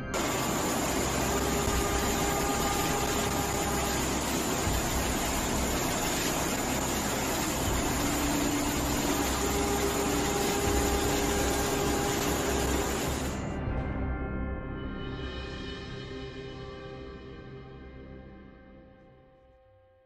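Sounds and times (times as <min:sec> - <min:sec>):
floodwater rushing: 0:00.1 - 0:13.4.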